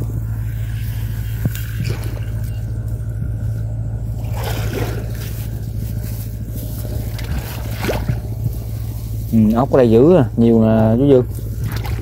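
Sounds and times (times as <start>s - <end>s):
small engine humming: 0.0s - 12.0s
water trickling and splashing: 4.1s - 9.7s, 11.4s - 12.0s.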